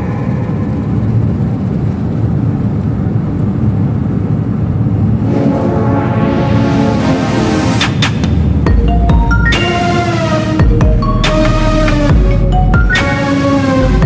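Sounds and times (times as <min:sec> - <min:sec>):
music: 0:05.2 - 0:14.0.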